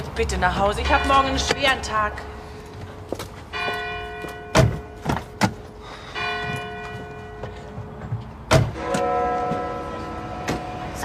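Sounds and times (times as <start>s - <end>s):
church bell tolling: 0.6s - 8.0s, 8.7s - 11.0s.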